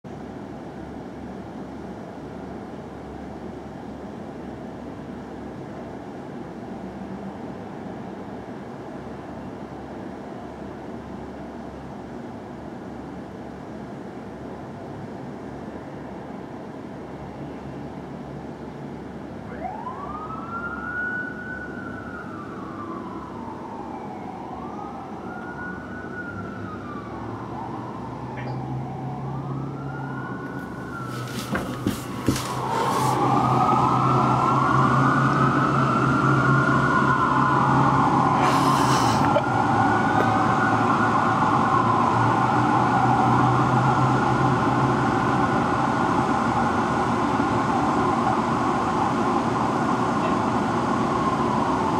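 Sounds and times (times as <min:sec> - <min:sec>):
fire truck sirens wailing: 0:18.9 - 0:51.9
truck engine drone: 0:26.9 - 0:51.9.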